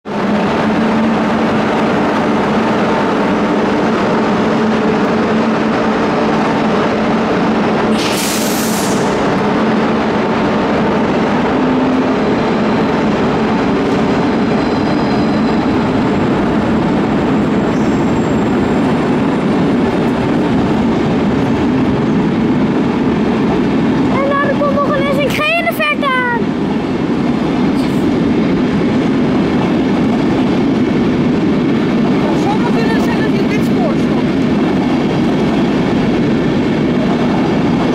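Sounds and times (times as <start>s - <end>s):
train wheels rumbling on rail: 0.0s - 37.9s
air hiss: 7.9s - 9.2s.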